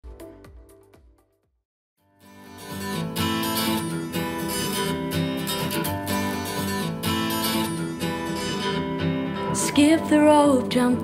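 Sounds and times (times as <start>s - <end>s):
strummed acoustic guitar: 2.0s - 11.0s.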